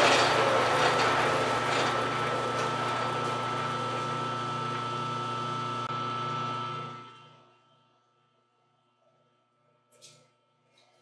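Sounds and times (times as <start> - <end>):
metal lathe humming: 0.0 - 7.1.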